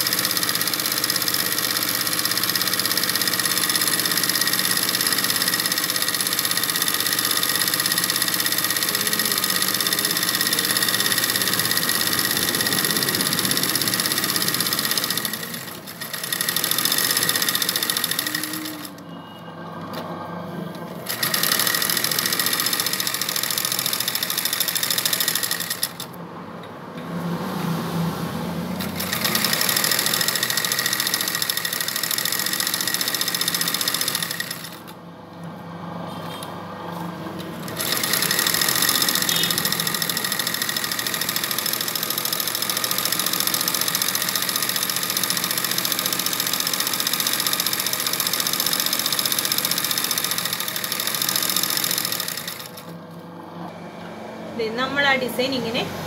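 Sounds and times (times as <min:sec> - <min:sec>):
sewing machine stitching: 0:00.0 - 0:19.1, 0:20.9 - 0:26.2, 0:28.8 - 0:35.0, 0:36.2 - 0:53.0.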